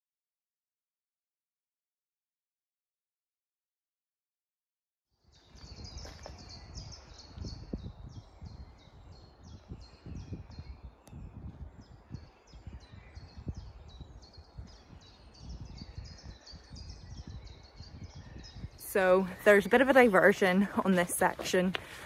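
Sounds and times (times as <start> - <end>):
bird chirping: 5.2 - 22.0
low gusty rumble: 5.5 - 22.0.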